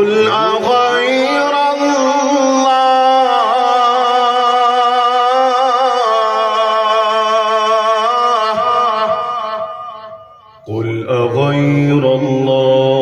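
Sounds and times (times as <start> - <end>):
man reciting melodically: 0.0 - 13.0.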